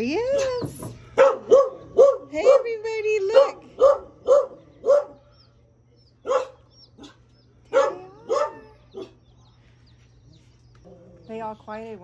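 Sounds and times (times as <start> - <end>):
dog barking: 1.2 - 5.3, 6.2 - 9.2.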